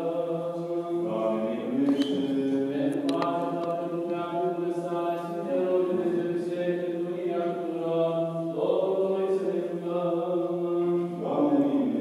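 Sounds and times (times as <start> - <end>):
men chanting in held notes: 0.0 - 12.0
faint clicks: 2.9 - 3.8.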